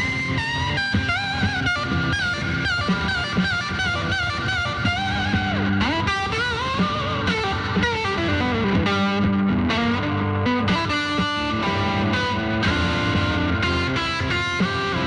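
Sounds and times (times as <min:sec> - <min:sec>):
electric guitar lead: 0:00.0 - 0:15.0.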